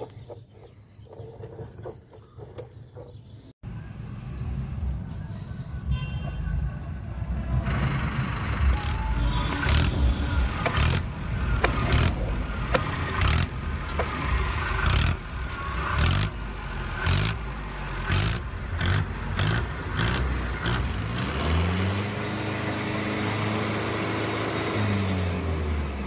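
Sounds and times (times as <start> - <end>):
vehicle engine running unevenly: 7.2 - 26.0.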